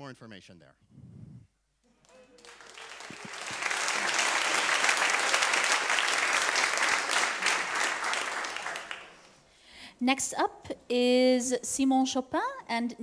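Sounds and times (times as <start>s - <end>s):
audience applauding: 2.0s - 9.4s.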